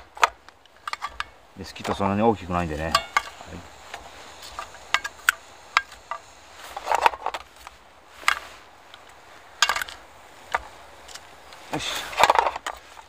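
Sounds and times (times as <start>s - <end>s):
utensil scraping metal mess tin: 1.0s - 7.4s.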